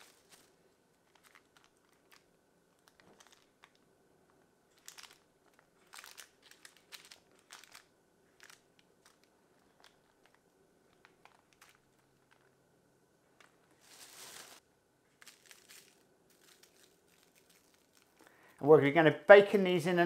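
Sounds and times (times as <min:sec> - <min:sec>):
grated cheese crinkling: 0:04.7 - 0:12.5, 0:15.2 - 0:18.3.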